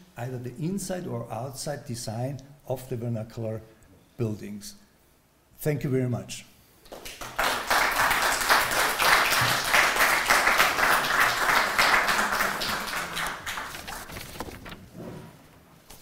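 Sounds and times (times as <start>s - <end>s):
audience applauding: 6.9s - 14.4s.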